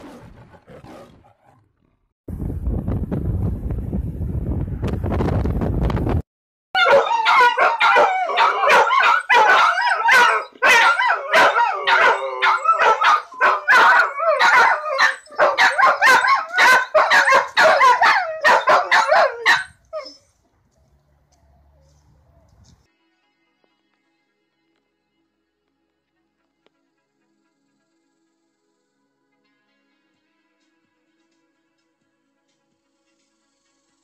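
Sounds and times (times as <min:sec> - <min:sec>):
dog howling yipping and barking: 0:06.8 - 0:20.3.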